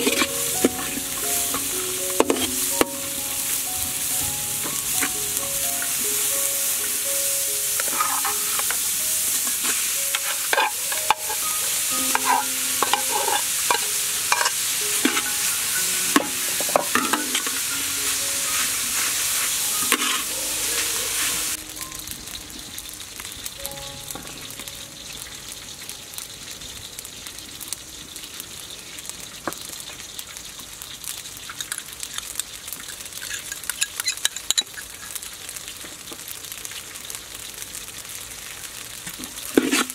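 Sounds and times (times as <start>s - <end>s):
metal spatula scraping a pan: 0.0s - 2.9s, 7.6s - 21.6s, 39.5s - 39.9s
food sizzling in a wok: 0.0s - 39.9s.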